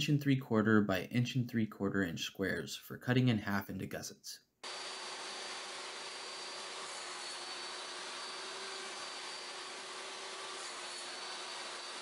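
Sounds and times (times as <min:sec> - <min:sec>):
table saw whirring: 0:04.6 - 0:12.0.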